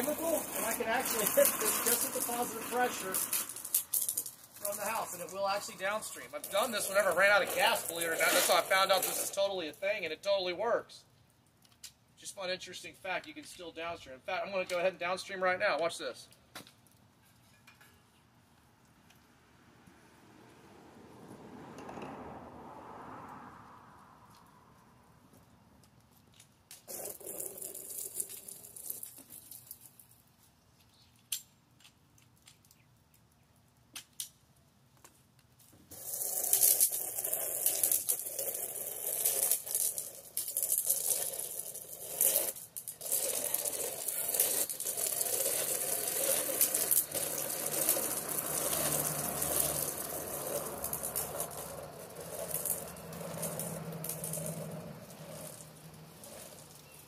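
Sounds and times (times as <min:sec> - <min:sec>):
water hissing onto siding: 0:00.0 - 0:10.0, 0:26.8 - 0:30.1, 0:35.8 - 0:57.0.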